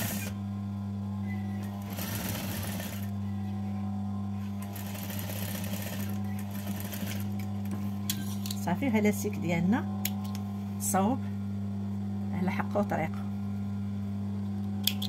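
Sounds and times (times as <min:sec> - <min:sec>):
steady low hum: 0:00.0 - 0:15.0
sewing machine stitching: 0:01.6 - 0:03.1, 0:04.7 - 0:07.2.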